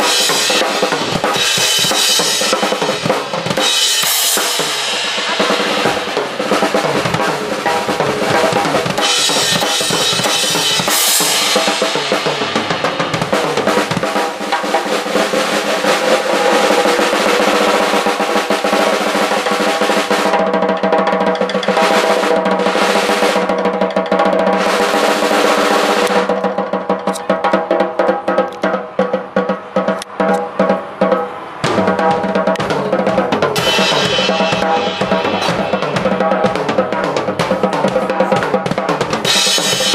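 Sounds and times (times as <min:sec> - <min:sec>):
cymbal crashes: 0:00.0 - 0:20.4, 0:31.1 - 0:38.5, 0:39.2 - 0:39.9
snare and tom rolls: 0:00.0 - 0:39.9
bass drum: 0:00.8 - 0:14.4, 0:31.6 - 0:39.9.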